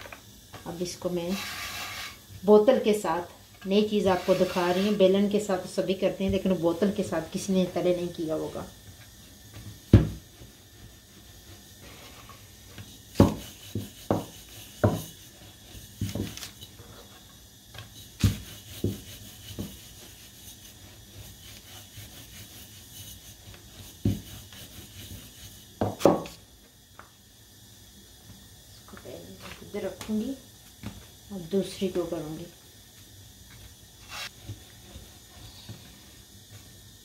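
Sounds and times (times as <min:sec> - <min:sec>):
bottle rubbing on dough: 0:01.2 - 0:02.6, 0:03.7 - 0:17.2, 0:17.8 - 0:25.9.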